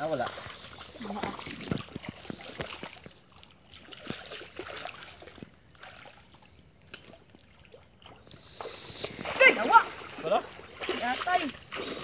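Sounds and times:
splashing in shallow water: 0:00.0 - 0:12.0.

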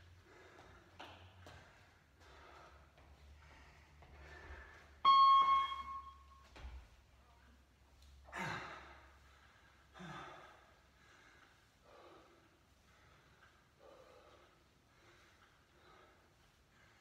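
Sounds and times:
heavy breathing: 0:00.1 - 0:05.0, 0:08.3 - 0:17.0
timer bell beep: 0:05.0 - 0:06.4.

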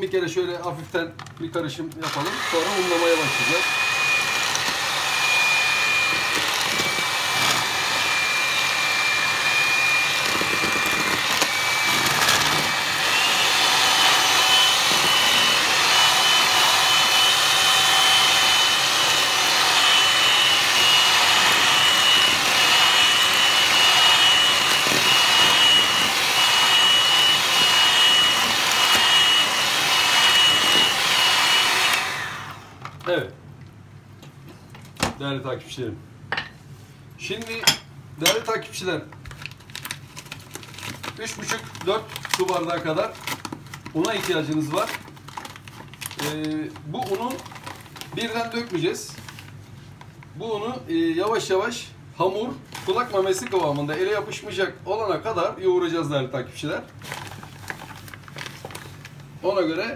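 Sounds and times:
electric hand mixer whining: 0:02.0 - 0:32.9.

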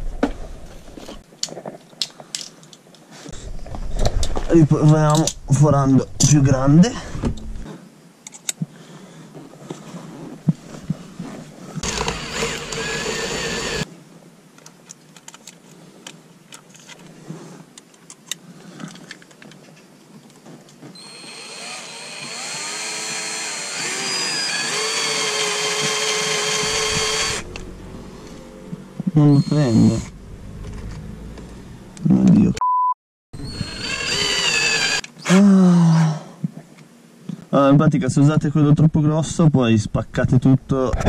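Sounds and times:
cordless drill boring into metal: 0:11.8 - 0:13.9, 0:21.0 - 0:27.5, 0:33.4 - 0:35.1.

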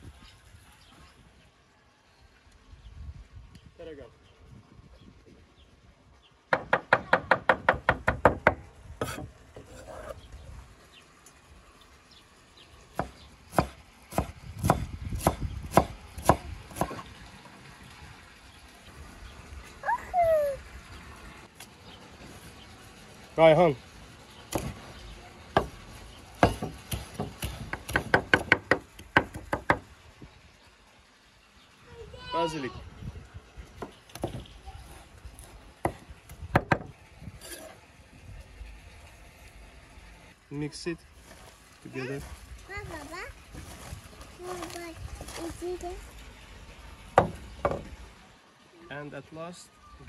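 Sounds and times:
cleaver chopping on wooden board: 0:06.5 - 0:09.3, 0:13.0 - 0:17.0, 0:24.5 - 0:24.8, 0:25.6 - 0:25.8, 0:26.4 - 0:29.8, 0:33.8 - 0:34.5, 0:36.6 - 0:36.9.

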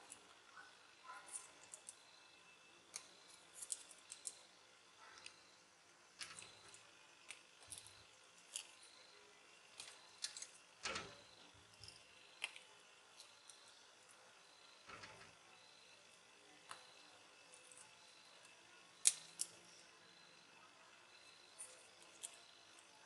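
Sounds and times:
pliers cracking plastic: 0:19.0 - 0:19.6.

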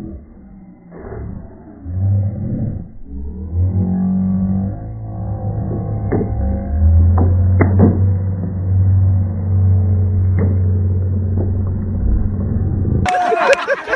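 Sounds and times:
steady low rumble: 0:00.0 - 0:13.9.

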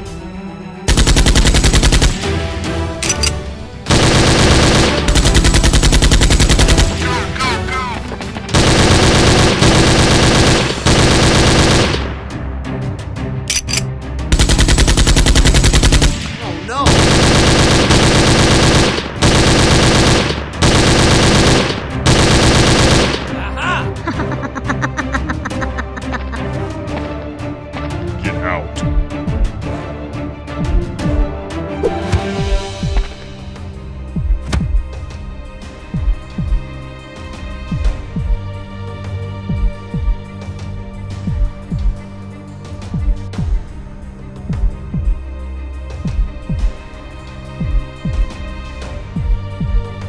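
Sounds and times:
machine-gun fire: 0:00.9 - 0:03.3, 0:03.9 - 0:07.4, 0:08.5 - 0:12.1, 0:14.3 - 0:23.4.

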